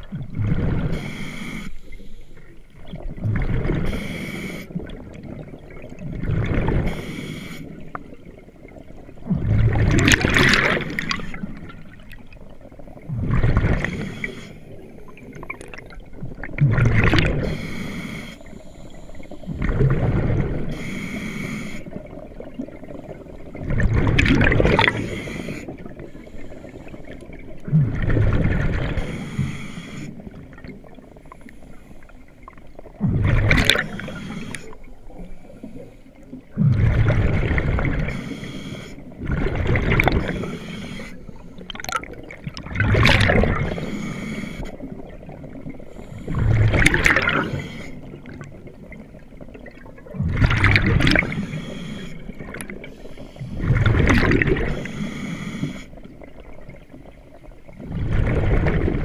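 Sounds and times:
rush of bubbles: 0:00.0 - 0:01.1, 0:02.8 - 0:04.1, 0:04.7 - 0:07.1, 0:08.1 - 0:14.4, 0:15.0 - 0:17.6, 0:19.5 - 0:20.9, 0:21.9 - 0:26.2, 0:26.9 - 0:29.2, 0:32.5 - 0:35.1, 0:36.5 - 0:38.2, 0:39.1 - 0:40.6, 0:41.3 - 0:44.1, 0:44.7 - 0:55.0, 0:56.0 - 0:59.0
underwater gurgling: 0:00.0 - 0:59.0
diver breathing through regulator: 0:00.8 - 0:02.5, 0:03.9 - 0:04.8, 0:06.8 - 0:07.9, 0:13.5 - 0:15.1, 0:17.3 - 0:22.0, 0:24.7 - 0:27.2, 0:28.8 - 0:30.3, 0:33.6 - 0:36.1, 0:37.9 - 0:39.2, 0:40.0 - 0:42.0, 0:43.1 - 0:45.0, 0:45.8 - 0:48.4, 0:50.7 - 0:56.1.

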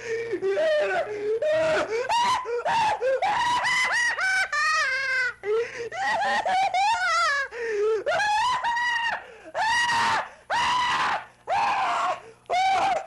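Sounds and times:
man screaming: 0:00.5 - 0:04.1, 0:08.2 - 0:13.0.

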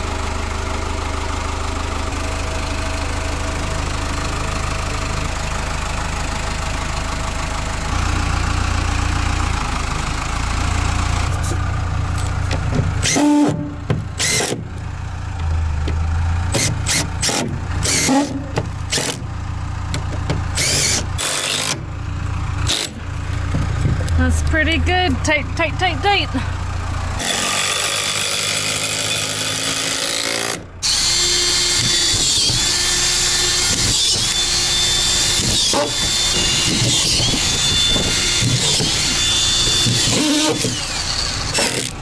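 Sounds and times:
forklift engine running: 0:00.0 - 0:42.0
impact driver bursts: 0:13.0 - 0:14.7, 0:16.5 - 0:19.2, 0:20.6 - 0:21.8, 0:22.7 - 0:23.0, 0:27.2 - 0:42.0.

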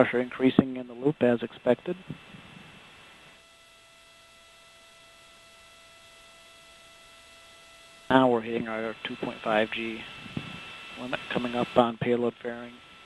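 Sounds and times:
broadcast hiss and hum: 0:00.0 - 0:13.0
thin steady tones: 0:00.0 - 0:13.0.

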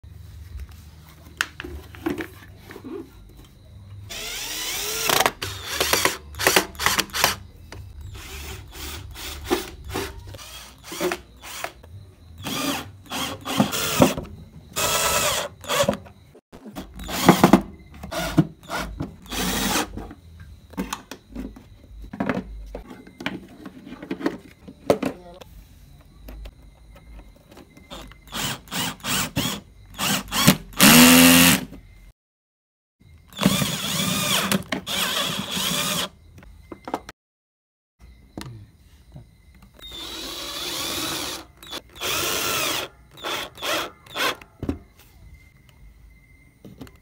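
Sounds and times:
cordless drill whining: 0:04.1 - 0:07.4, 0:08.1 - 0:11.8, 0:12.4 - 0:14.2, 0:14.8 - 0:16.0, 0:17.0 - 0:20.0, 0:27.9 - 0:31.7, 0:33.3 - 0:36.1, 0:39.8 - 0:44.4.

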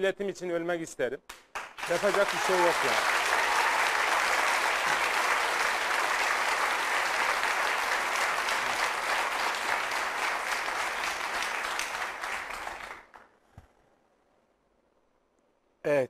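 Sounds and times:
audience applauding: 0:01.5 - 0:13.3.

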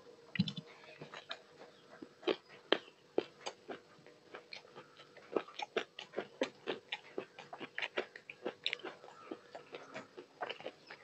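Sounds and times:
chewing mouth sounds: 0:02.0 - 0:11.0.

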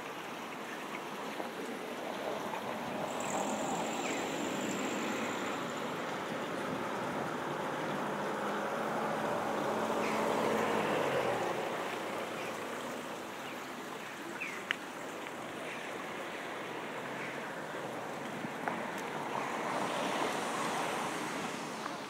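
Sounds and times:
rushing outdoor noise: 0:00.0 - 0:22.0
passing vehicle engine: 0:02.9 - 0:13.0.

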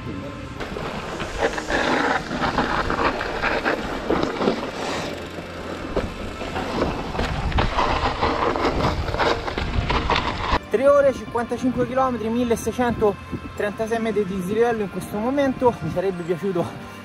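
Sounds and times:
bike tyres rolling over dirt: 0:00.0 - 0:16.7
bike rattling and knocking: 0:00.6 - 0:10.6.

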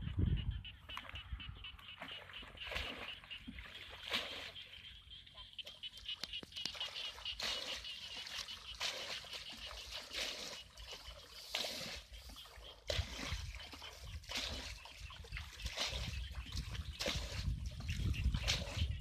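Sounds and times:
feet wading through water: 0:00.8 - 0:19.0
water splashing and pouring: 0:02.4 - 0:04.7, 0:06.4 - 0:19.0.

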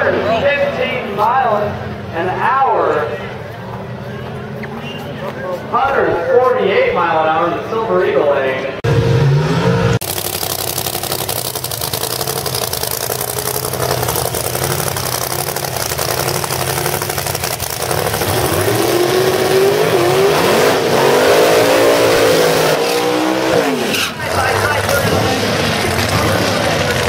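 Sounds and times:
drag car engines revving: 0:08.6 - 0:27.0.

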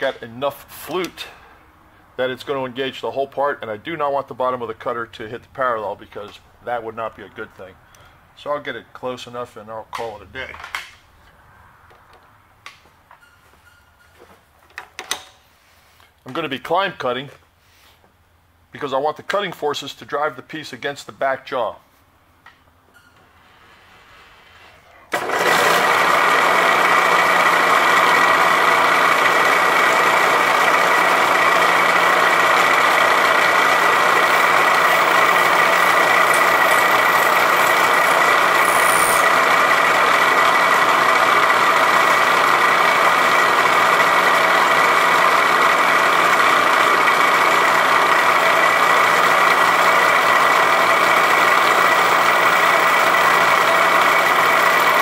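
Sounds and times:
milling machine cutting plastic: 0:32.3 - 0:40.4.

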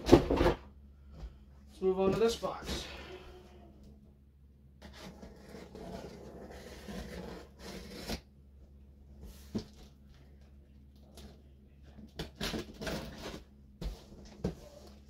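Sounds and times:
cardboard rubbing and scraping: 0:04.8 - 0:08.2, 0:12.4 - 0:15.0.

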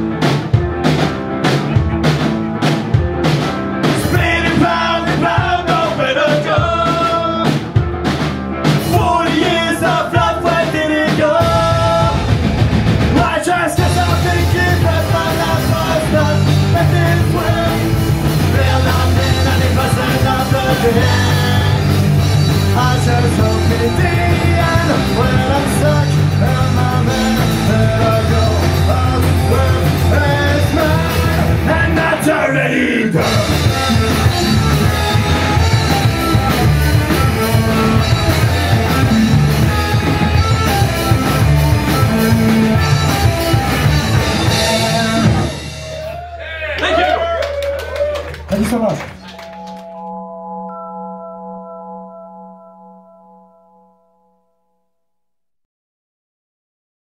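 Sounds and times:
drum kit: 0:00.0 - 0:32.5, 0:33.1 - 0:49.6
distorted electric guitars: 0:00.0 - 0:46.3
bass guitar: 0:00.0 - 0:54.2
person singing: 0:04.0 - 0:07.6, 0:08.8 - 0:12.3, 0:13.1 - 0:34.7, 0:44.2 - 0:45.6.

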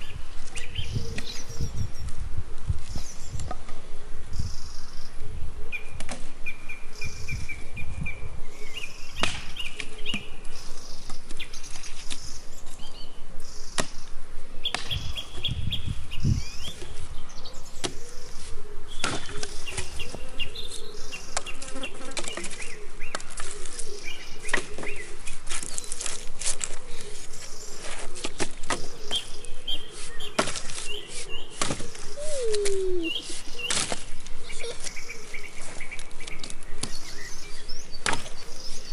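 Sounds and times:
birds chirping: 0:04.3 - 0:26.1, 0:28.7 - 0:38.9
axe chopping branches: 0:09.2 - 0:10.2, 0:30.2 - 0:30.9, 0:31.5 - 0:32.0, 0:36.3 - 0:37.0, 0:38.0 - 0:38.4.

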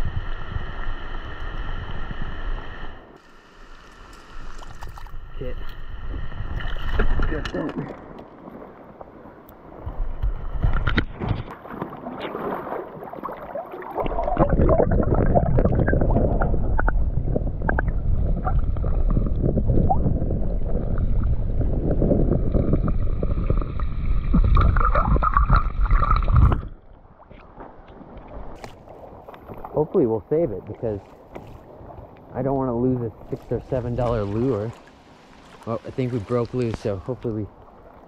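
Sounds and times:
river water churning underwater: 0:00.0 - 0:38.0
clicks and splashes: 0:04.1 - 0:05.2.

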